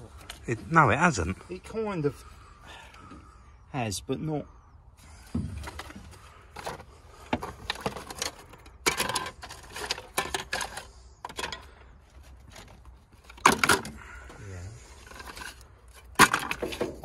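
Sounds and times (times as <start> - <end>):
plastic covers clicking and rattling: 5.6 - 14.2, 15.0 - 17.0.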